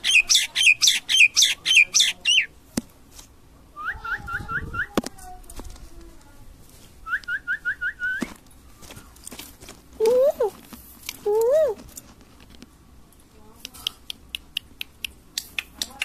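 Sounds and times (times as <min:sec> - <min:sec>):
myna calling: 0:00.0 - 0:02.6.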